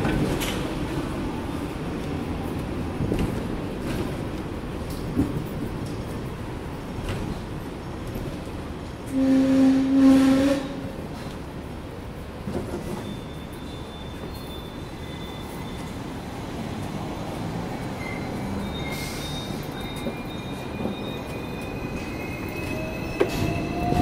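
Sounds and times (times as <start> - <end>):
tram rumbling on rails: 0.0 - 24.0
high wheel squeal: 12.8 - 16.1, 18.0 - 24.0.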